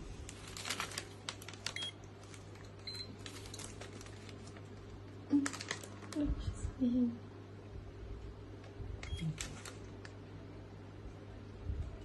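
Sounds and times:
soft paper rustles: 0.0 - 6.5, 9.2 - 9.9
steady low hum: 0.0 - 12.0.

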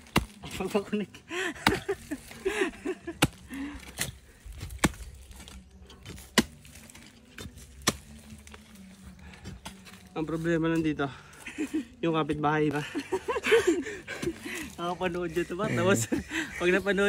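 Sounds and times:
hoe striking dry earth: 0.0 - 0.9, 1.6 - 2.3, 3.0 - 8.6.

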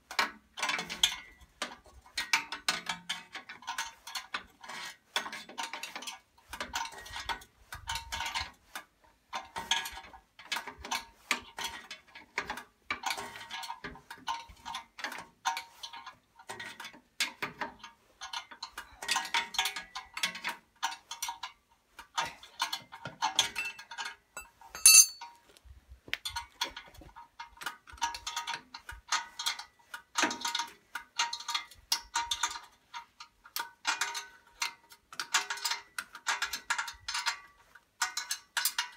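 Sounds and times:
metallic clink: 24.4 - 25.4.

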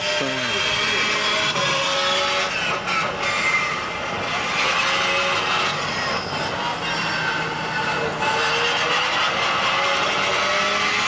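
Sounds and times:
racing car engines: 0.0 - 11.0.

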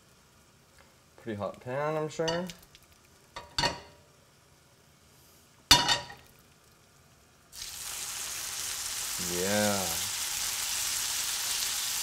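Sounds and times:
butter sizzling in pan: 5.8 - 12.0.

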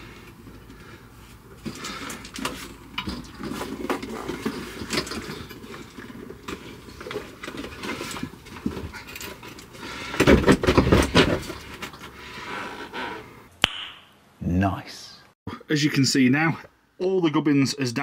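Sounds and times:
knocks and scrapes of heater handling: 0.3 - 12.2.

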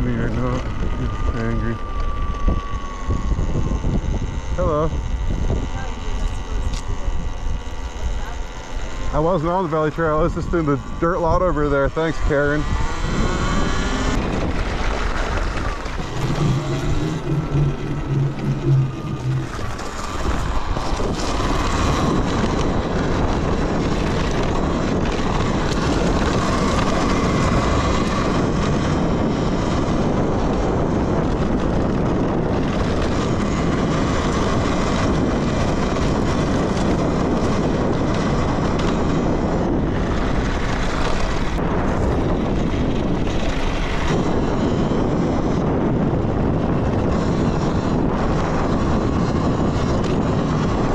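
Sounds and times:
wind rush and tyre noise: 0.0 - 5.9, 9.5 - 50.9
electric motor whine: 0.0 - 50.9
low hum: 0.0 - 50.9.

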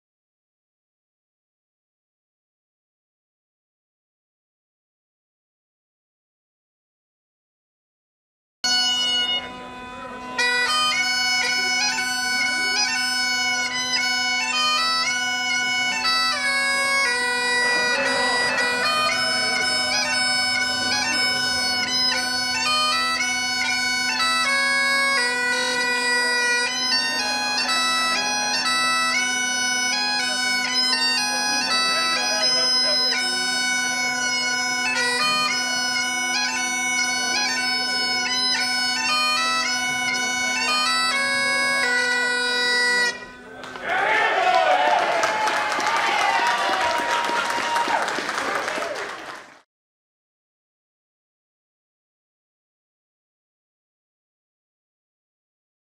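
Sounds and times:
bagpipe playing a tune: 8.6 - 43.6.

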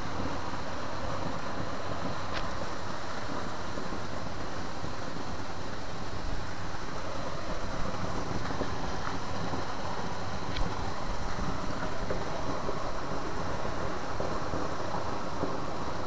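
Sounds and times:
steady rushing noise: 0.0 - 16.0
faint ticks: 1.2 - 4.2, 10.4 - 16.0.

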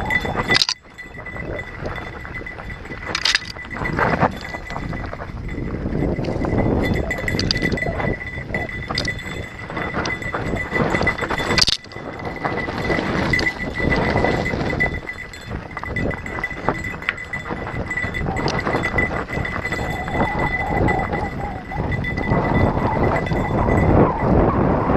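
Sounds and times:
bike chain and frame rattling: 0.0 - 24.9
wind rush: 0.0 - 24.9
tyres crunching over dirt: 8.8 - 19.8.

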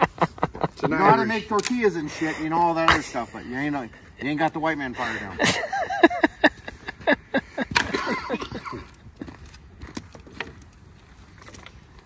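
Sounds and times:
men laughing: 0.0 - 9.6
campfire crackles: 0.0 - 12.0.

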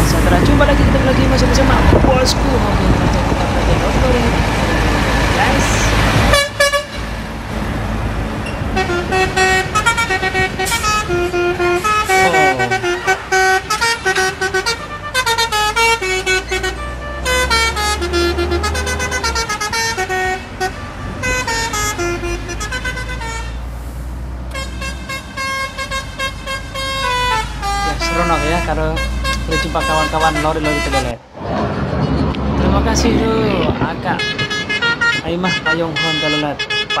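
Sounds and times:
road noise: 0.0 - 37.0
truck engine rumble: 0.0 - 37.0
multi-tone air horn tune: 8.8 - 23.6, 24.5 - 31.2.

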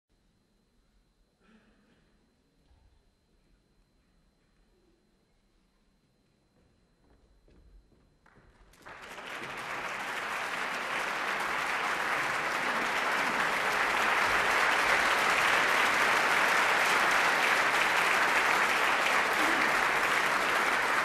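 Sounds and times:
audience applauding: 8.6 - 21.0.

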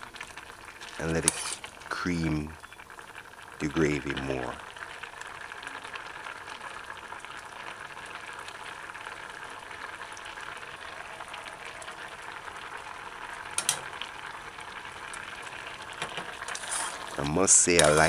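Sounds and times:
gravy bubbling and sizzling: 0.0 - 18.0.

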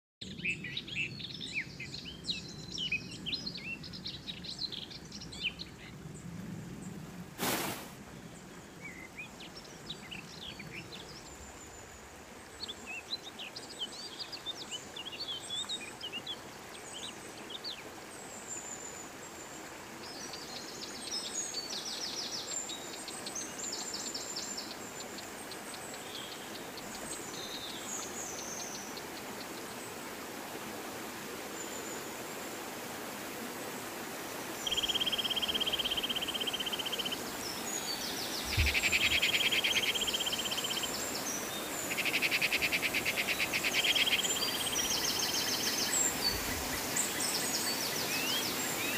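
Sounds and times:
stream and waterfall rushing: 1.2 - 48.9
birds chirping: 34.5 - 48.9.

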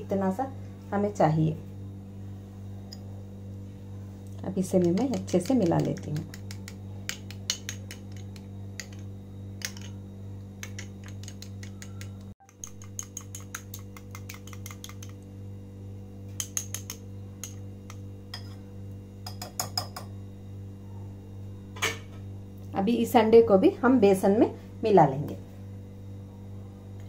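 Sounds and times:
steady low hum: 0.0 - 27.0
whisk tapping glass bowl: 4.6 - 10.0, 10.6 - 15.2, 16.4 - 18.6, 19.2 - 20.1.

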